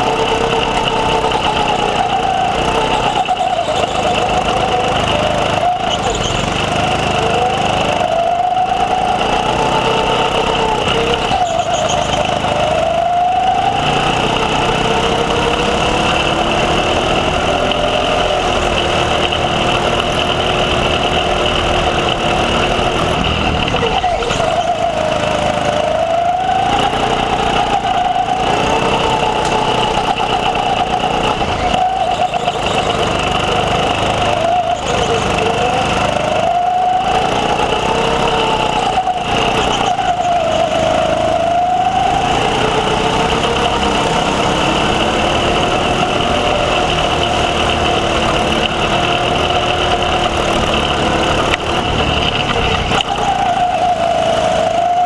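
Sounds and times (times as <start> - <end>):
go-kart engine running flat out: 0.0 - 55.0
lower engine note: 0.0 - 55.0.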